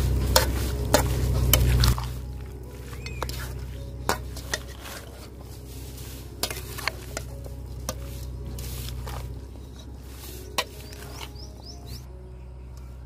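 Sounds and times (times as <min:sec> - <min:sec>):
spoon scraping metal bowl: 0:00.2 - 0:11.6
spoon clinking bowl: 0:02.8 - 0:05.1.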